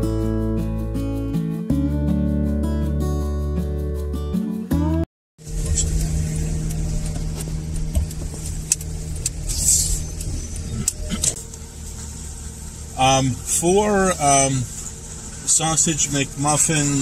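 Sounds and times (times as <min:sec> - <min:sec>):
car engine and road hum: 0:04.7 - 0:17.0.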